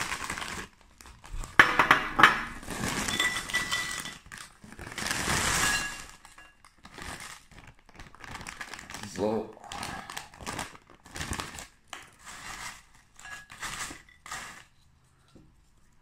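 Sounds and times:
chips pouring and rustling: 0:00.0 - 0:01.6, 0:02.5 - 0:15.0
plastic bag crinkling: 0:00.0 - 0:01.6, 0:02.5 - 0:14.8
chips clinking into bowl: 0:01.6 - 0:04.5, 0:05.2 - 0:07.2.

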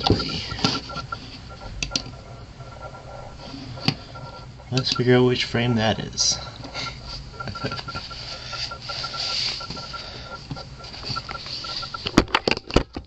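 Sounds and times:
fast ticking tone: 0:03.8 - 0:06.4, 0:07.3 - 0:12.0.

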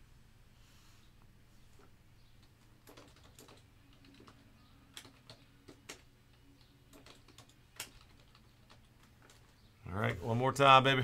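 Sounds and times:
keyboard typing: 0:01.8 - 0:09.7.

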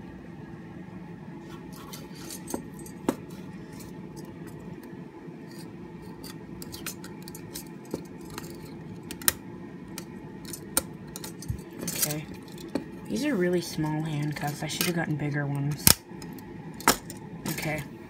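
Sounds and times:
low hum: 0:00.0 - 0:18.0
handcuffs clicking and rattling: 0:06.2 - 0:09.4, 0:10.4 - 0:12.7.

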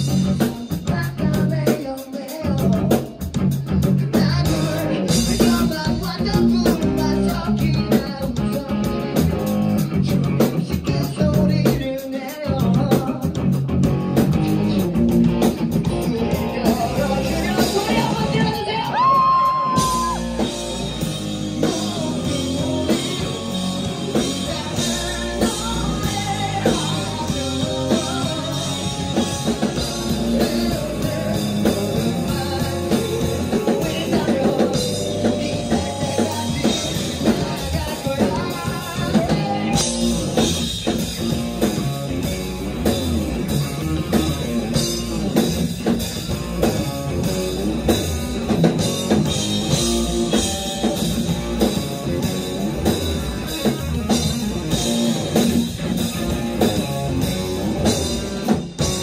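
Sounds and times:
distorted electric guitar: 0:00.0 - 0:01.7, 0:02.4 - 0:59.0
person singing: 0:00.0 - 0:09.3, 0:15.8 - 0:20.8, 0:21.4 - 0:40.7
drum kit: 0:00.0 - 0:59.0
electric bass: 0:00.0 - 0:59.0.

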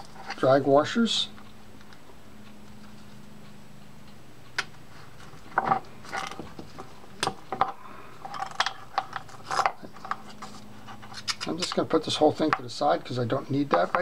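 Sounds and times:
small metal parts clicking: 0:07.2 - 0:10.4.

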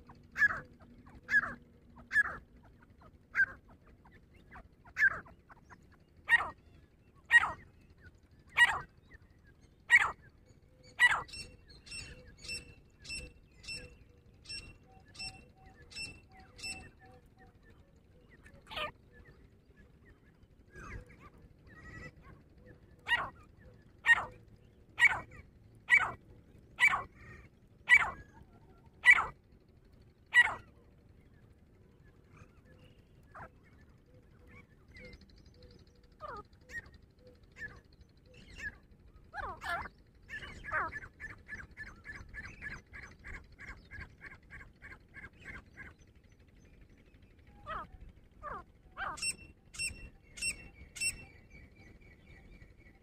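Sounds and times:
francolin calling: 0:07.3 - 0:07.7, 0:09.9 - 0:17.1, 0:23.0 - 0:26.2, 0:26.8 - 0:28.3, 0:29.0 - 0:29.4, 0:30.3 - 0:30.7, 0:47.6 - 0:51.4
fast run of short bird notes: 0:29.0 - 0:30.8.

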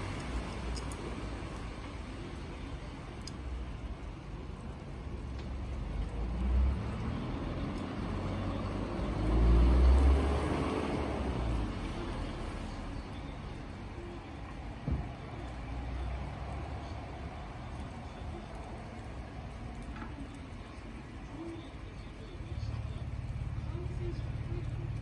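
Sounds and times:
traffic rumble: 0:00.0 - 0:25.0
vehicle passing: 0:05.6 - 0:19.9.

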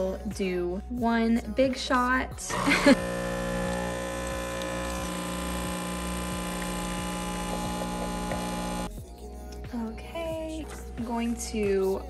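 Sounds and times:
espresso machine pump buzzing: 0:02.5 - 0:08.9.

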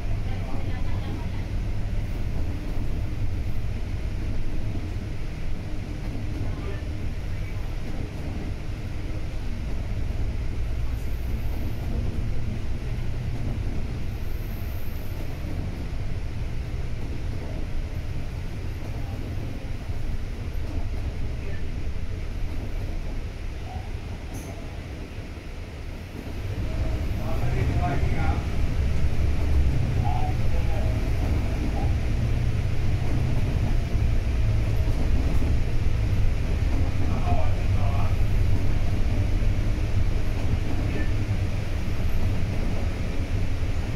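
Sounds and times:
bus engine and road rumble: 0:00.0 - 0:43.9.

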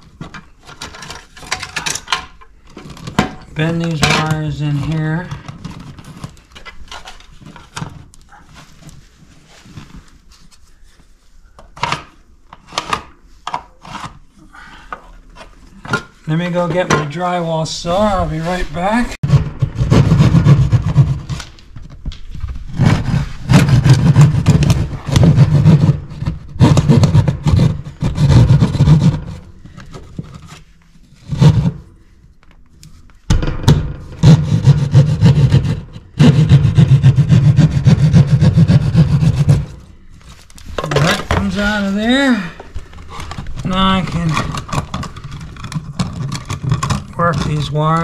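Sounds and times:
hand saw cutting drywall: 0:18.5 - 0:21.5, 0:22.8 - 0:29.5, 0:31.2 - 0:31.9, 0:34.2 - 0:39.8.

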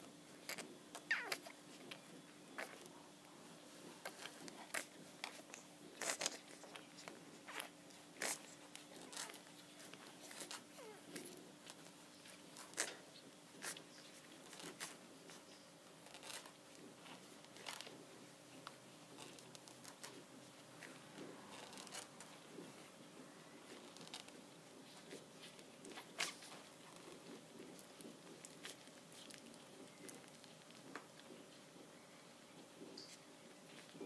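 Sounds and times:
puppies suckling smacking clicks: 0:23.7 - 0:31.9.

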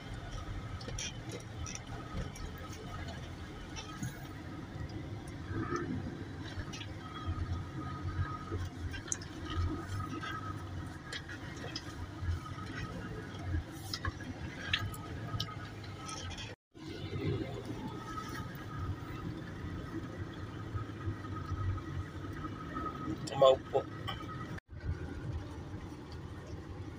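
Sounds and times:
faint clicks and rattles: 0:00.0 - 0:16.6
vehicle rumble from inside cab: 0:00.0 - 0:26.9.

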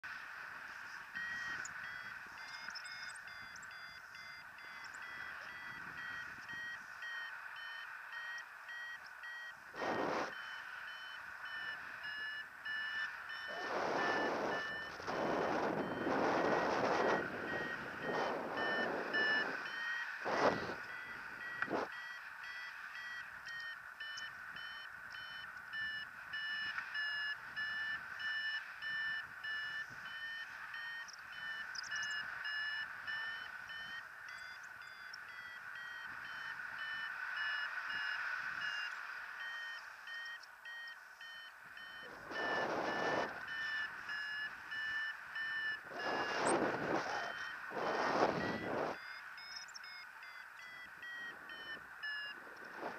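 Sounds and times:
variometer beeping in short pulses: 0:01.2 - 0:52.9
wind gusts on microphone: 0:09.7 - 0:10.4, 0:13.5 - 0:21.9, 0:42.1 - 0:44.2, 0:45.8 - 0:49.1, 0:51.3 - 0:52.9.

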